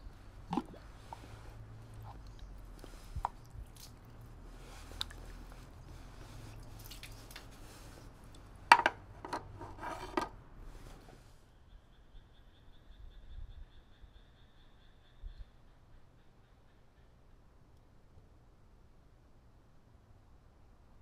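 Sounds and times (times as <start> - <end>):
water dripping into basin: 0.4 - 5.6, 6.5 - 7.5
wooden ladles knocking on stone: 8.7 - 9.4.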